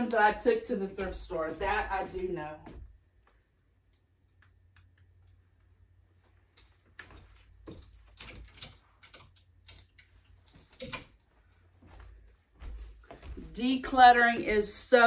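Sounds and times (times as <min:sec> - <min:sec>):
clothes hangers clicking and scraping: 0:06.6 - 0:11.2.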